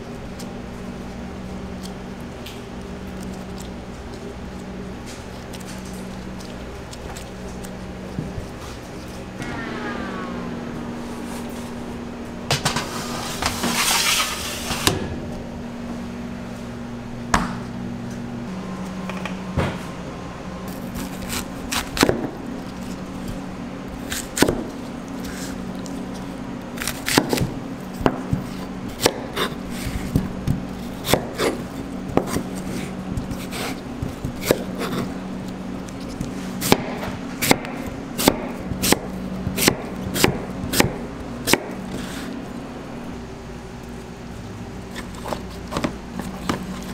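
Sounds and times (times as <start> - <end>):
kitchen machinery hum: 0.0 - 46.9
knife slicing pear: 24.0 - 42.4.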